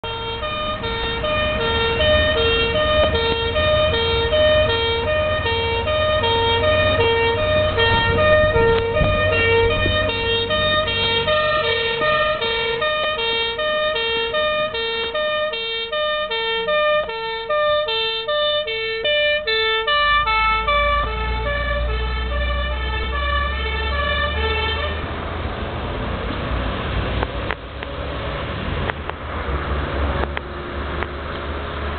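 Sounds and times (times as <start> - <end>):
truck engine running: 0.0 - 25.3
fire engine two-tone siren: 0.0 - 25.4.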